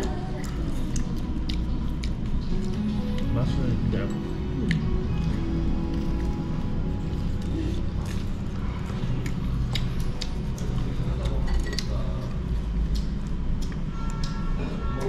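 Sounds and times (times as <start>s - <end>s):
low background hum: 0.0s - 15.0s
utensils and tableware clinking: 10.6s - 12.2s.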